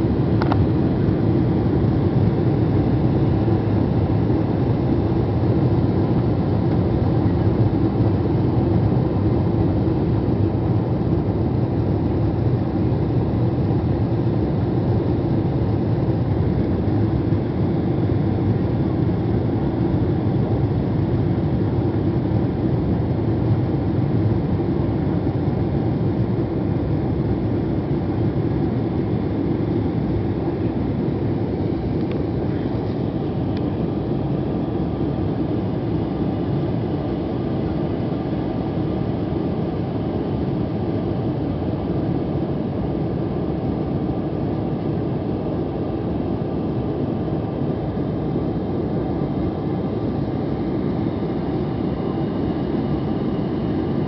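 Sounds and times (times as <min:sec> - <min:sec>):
jet engines droning: 0:00.0 - 0:54.0.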